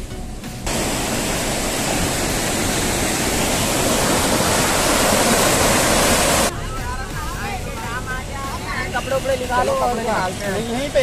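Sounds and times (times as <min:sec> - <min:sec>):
water rushing through a dam: 0:00.7 - 0:06.5.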